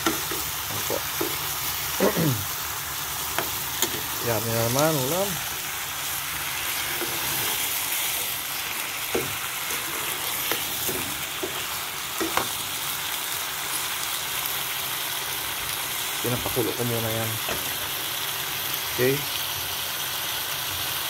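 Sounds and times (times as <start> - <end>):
chicken sizzling in a pan: 0.0 - 21.0
metal spoon knocking on pan: 12.2 - 12.5.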